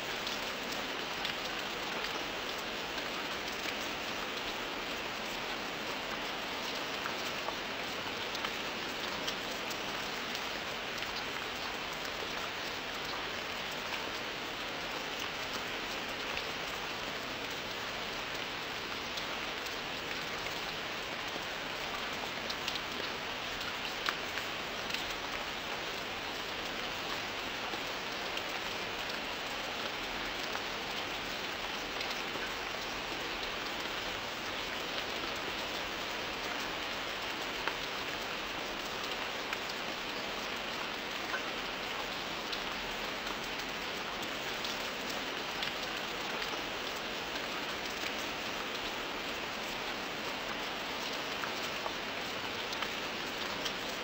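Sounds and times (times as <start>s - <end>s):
raindrop ticks: 8.2s - 14.3s, 22.0s - 27.2s, 49.6s - 54.0s.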